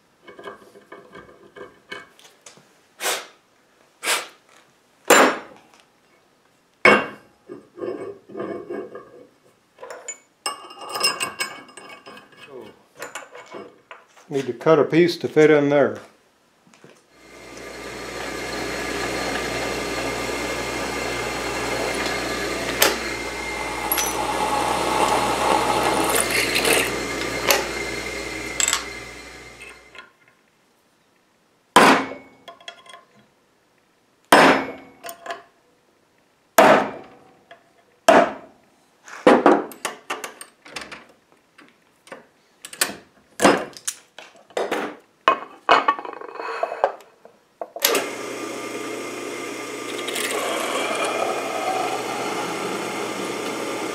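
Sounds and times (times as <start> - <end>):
power tool humming: 17.2 - 30.0, 47.9 - 53.9.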